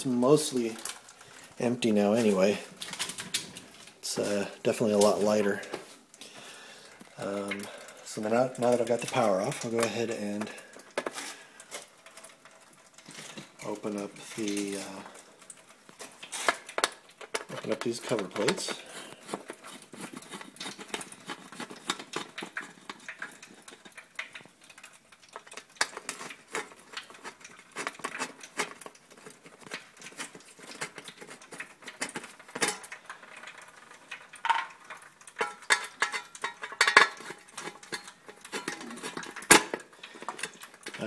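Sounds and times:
clicks and scrapes: 0:00.5 - 0:05.9, 0:07.0 - 0:41.0
metal plates clattering: 0:29.6 - 0:41.0.

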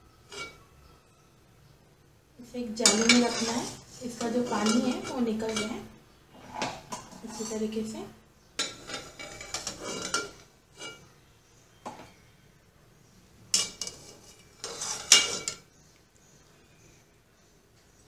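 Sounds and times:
spoon clinking on metal cookware: 0:00.3 - 0:00.7, 0:02.8 - 0:05.9, 0:08.6 - 0:11.1, 0:13.5 - 0:15.7.

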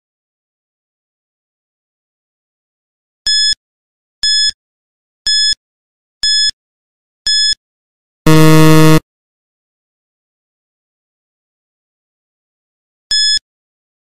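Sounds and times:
low buzzer: 0:08.3 - 0:09.0
short high electronic beeps: 0:08.3 - 0:09.0.

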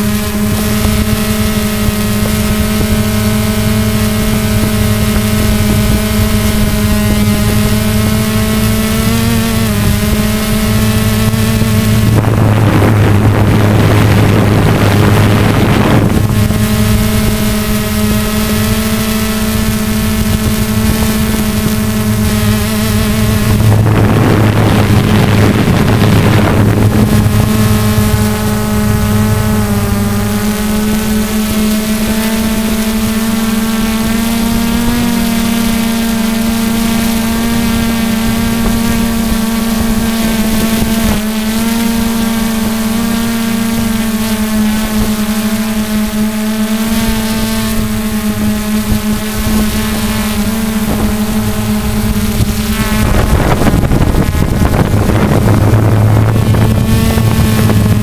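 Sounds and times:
drone motors and propellers buzzing: 0:00.0 - 0:58.0
rushing noise: 0:09.0 - 0:31.4, 0:50.8 - 0:58.0.

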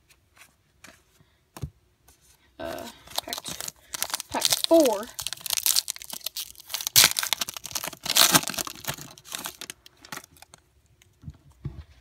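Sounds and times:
foil wrapper tearing and crinkling: 0:03.0 - 0:10.6.

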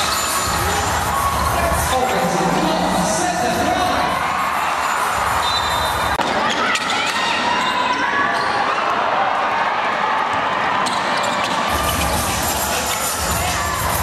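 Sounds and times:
crowd calling and shouting: 0:00.0 - 0:14.0.

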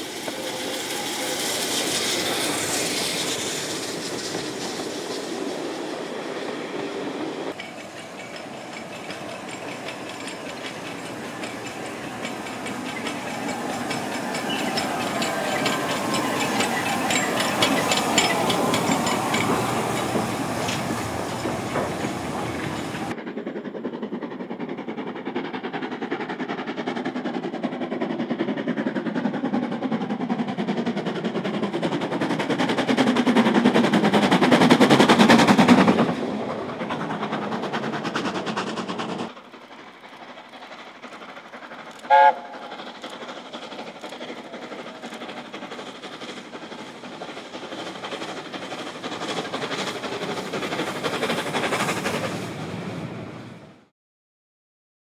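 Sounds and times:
steam locomotive chuffing: 0:00.0 - 0:53.9
steam whistle blast: 0:42.1 - 0:42.7.

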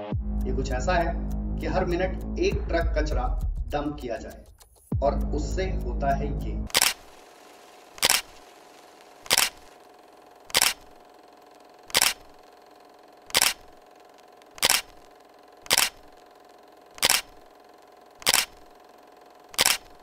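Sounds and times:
camera shutter clicks: 0:06.7 - 0:07.2, 0:07.9 - 0:09.8, 0:10.5 - 0:11.0, 0:11.8 - 0:12.5, 0:13.2 - 0:16.3, 0:16.9 - 0:18.8, 0:19.5 - 0:20.0.

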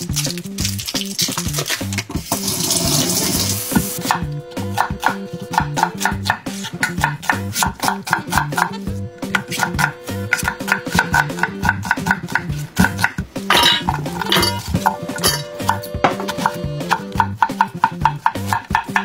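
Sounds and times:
background music with steady beat: 0:00.0 - 0:19.0
knife chopping on wooden board: 0:03.8 - 0:13.2, 0:15.6 - 0:19.0
onion clattering into steel bowl: 0:10.3 - 0:16.4.

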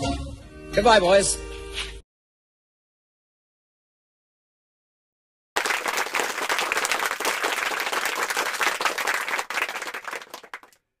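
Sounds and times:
crowd applauding: 0:05.6 - 0:10.8.

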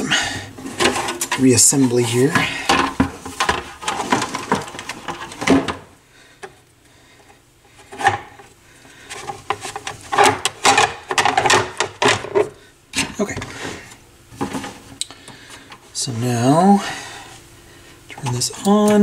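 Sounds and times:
metal parts scraping and rubbing: 0:00.6 - 0:05.5.

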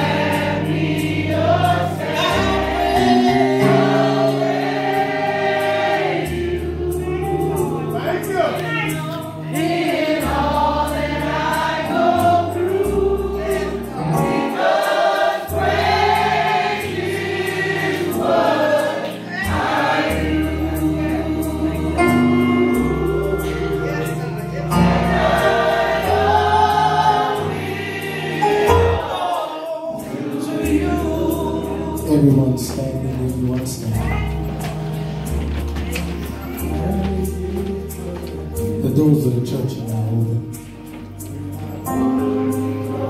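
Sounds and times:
choir singing gospel: 0:00.0 - 0:43.0
sustained bass accompaniment: 0:19.5 - 0:29.0.

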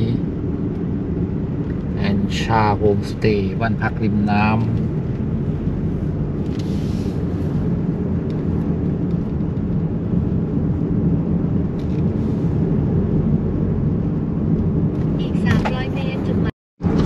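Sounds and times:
car driving on road: 0:00.0 - 0:17.0.

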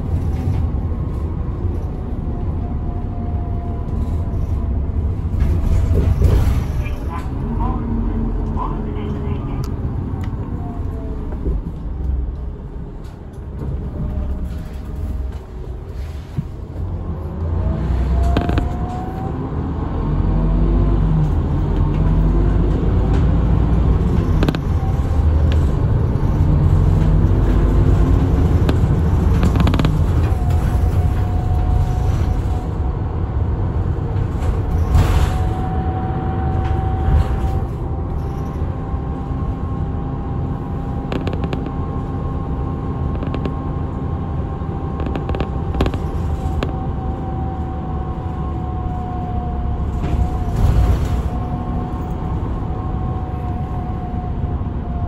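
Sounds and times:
bus engine and road rumble: 0:00.0 - 0:55.0
knocks and rattles: 0:23.0 - 0:31.6.

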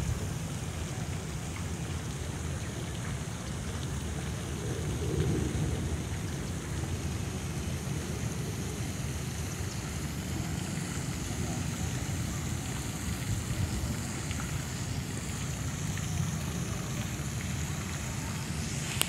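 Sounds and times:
wind on microphone: 0:00.0 - 0:00.4
fountain water splashing: 0:00.0 - 0:19.0.

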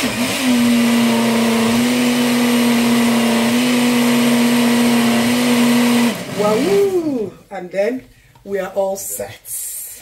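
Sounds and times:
blender motor whirring: 0:00.0 - 0:07.3.

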